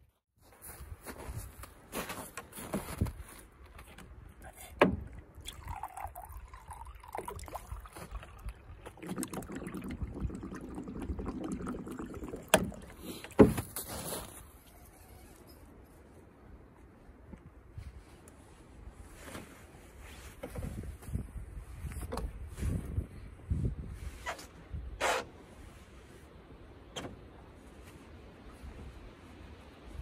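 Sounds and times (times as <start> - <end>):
water pouring into plastic cup: 5.3 - 13.4.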